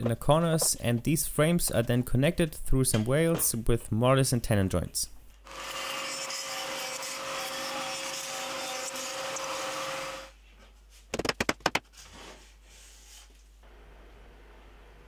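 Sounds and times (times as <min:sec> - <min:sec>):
router cutting wood: 0:05.5 - 0:10.3
sharp knocks: 0:11.1 - 0:11.8.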